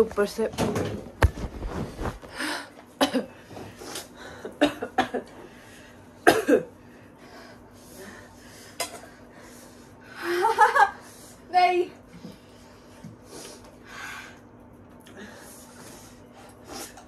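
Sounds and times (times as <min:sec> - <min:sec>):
person coughing: 0:03.0 - 0:03.4, 0:04.6 - 0:05.3, 0:06.2 - 0:06.8
breathing: 0:06.8 - 0:10.2, 0:12.2 - 0:14.4, 0:15.1 - 0:16.2.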